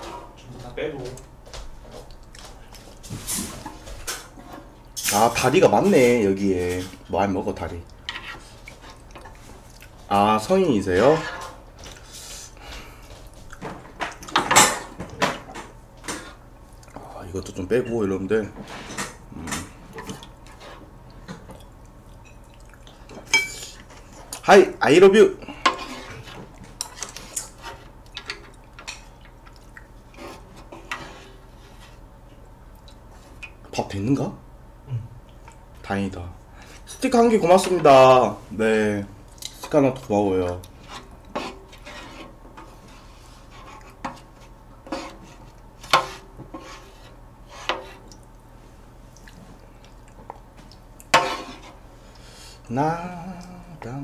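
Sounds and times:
ladle stirring broth: 0:02.2 - 0:12.6, 0:19.7 - 0:33.8, 0:36.5 - 0:52.7
broth dripping and sloshing: 0:47.7 - 0:52.2.

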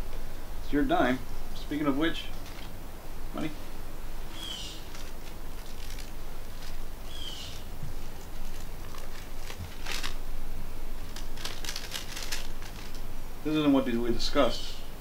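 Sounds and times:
steady outdoor hiss: 0:00.0 - 0:15.0
paper rustling: 0:02.4 - 0:02.7, 0:04.7 - 0:10.2, 0:11.0 - 0:13.0
bird chirp: 0:04.3 - 0:05.0, 0:07.0 - 0:07.8.

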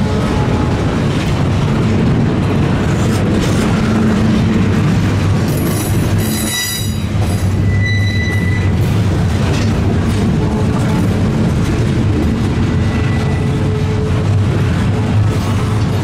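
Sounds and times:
train wheels rumbling on rail: 0:00.0 - 0:16.0
wheel squeals: 0:06.2 - 0:08.8.

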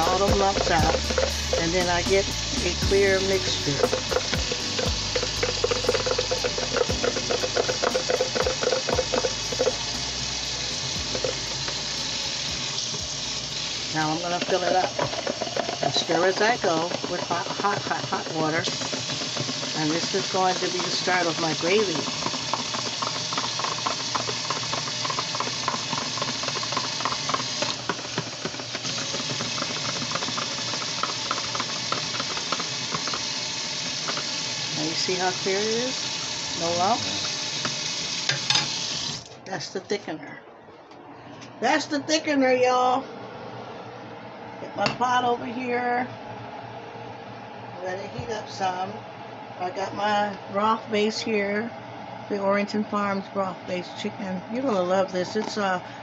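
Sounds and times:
spoon stirring in cup: 0:00.0 - 0:01.8, 0:03.3 - 0:09.9, 0:11.0 - 0:11.8, 0:14.4 - 0:33.2
tap water running into sink: 0:00.0 - 0:39.3.

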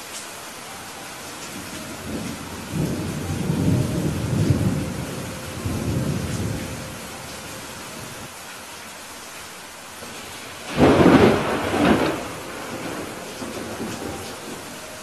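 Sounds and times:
heavy rain: 0:00.0 - 0:15.0
low thunder rumble: 0:01.8 - 0:08.3, 0:10.5 - 0:14.8.

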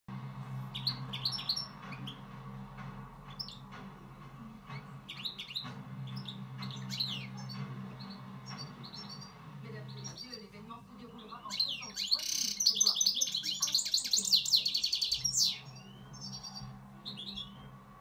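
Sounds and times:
steady low hum: 0:00.1 - 0:11.5
bird twittering chirps and trills: 0:00.5 - 0:04.0, 0:04.6 - 0:17.8.

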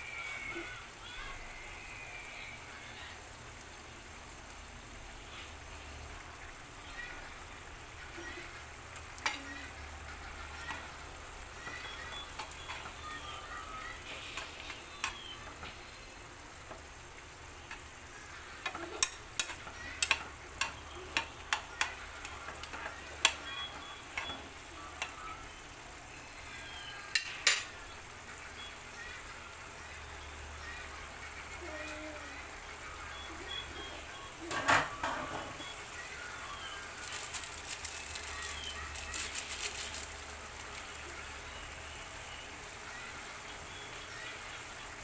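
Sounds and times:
stew simmering and bubbling: 0:00.0 - 0:45.0
metal spoon clinking on pan: 0:27.1 - 0:27.7.

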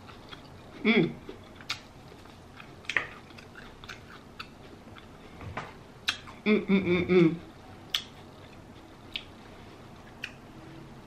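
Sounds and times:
close chewing with wet clicks: 0:00.0 - 0:05.1, 0:06.0 - 0:06.3, 0:07.9 - 0:09.3, 0:10.2 - 0:10.4
lip smacks: 0:06.0 - 0:06.3
person humming: 0:06.4 - 0:07.5.

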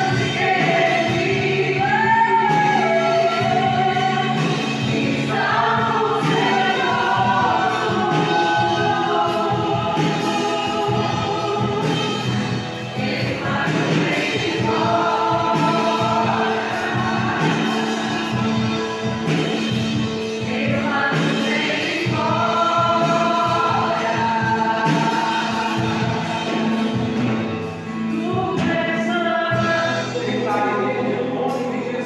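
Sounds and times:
acoustic guitar strumming: 0:00.0 - 0:32.0
group singing gospel song: 0:00.0 - 0:32.0.

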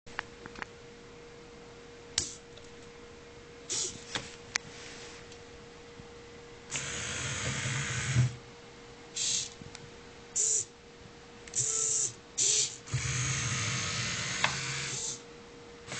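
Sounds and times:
small electric motors whirring: 0:03.7 - 0:04.0, 0:06.7 - 0:08.4, 0:09.2 - 0:09.6, 0:11.6 - 0:15.2.

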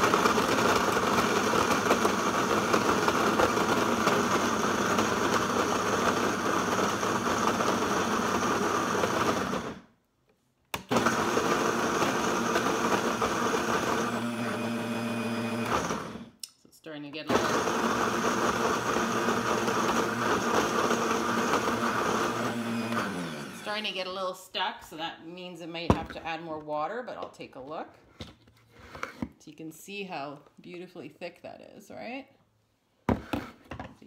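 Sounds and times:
blender running: 0:00.0 - 0:09.9, 0:10.8 - 0:16.4, 0:17.2 - 0:24.2.

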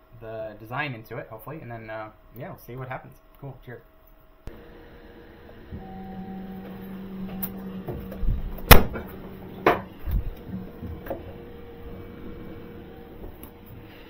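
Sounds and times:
low machine hum: 0:04.5 - 0:14.0.

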